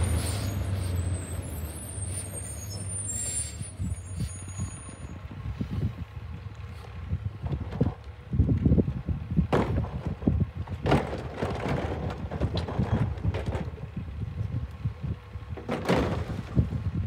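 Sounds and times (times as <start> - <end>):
cart and lift rattling and clunks: 9.5 - 13.9, 15.5 - 16.7.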